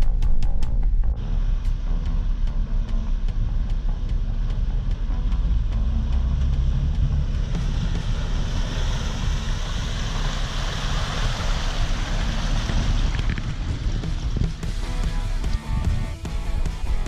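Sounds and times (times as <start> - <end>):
car engine rumble: 0.0 - 17.0
tyres splashing through water: 7.3 - 15.4.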